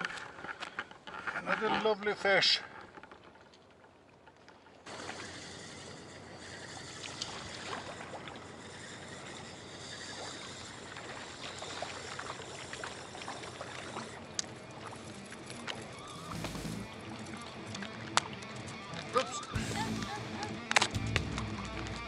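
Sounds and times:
small waves lapping against quay: 0.0s - 21.0s
faint clicks and ticks: 2.6s - 22.0s
low rumble: 16.2s - 17.1s.

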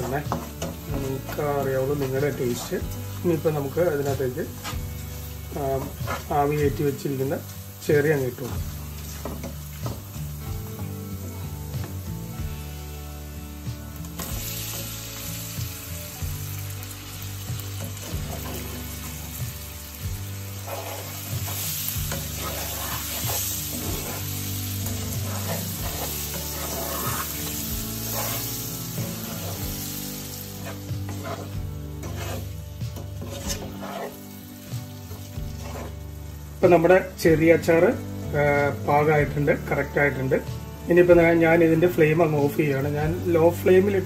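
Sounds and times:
spatula scraping a pan: 0.0s - 10.4s, 14.2s - 36.4s
cherries sizzling in hot oil: 0.0s - 44.0s.

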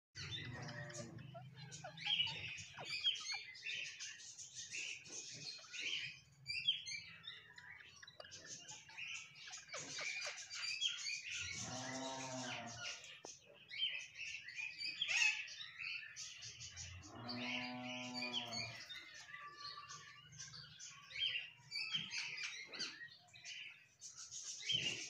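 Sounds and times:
parakeets chattering: 0.2s - 25.0s.

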